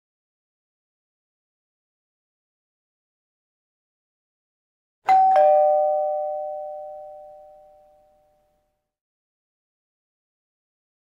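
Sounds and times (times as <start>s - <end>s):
two-note ding-dong chime: 5.1s - 8.5s.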